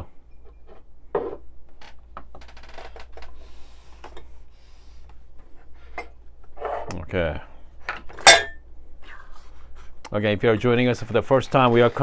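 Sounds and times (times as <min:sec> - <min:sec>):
low steady hum: 0:03.0 - 0:11.7.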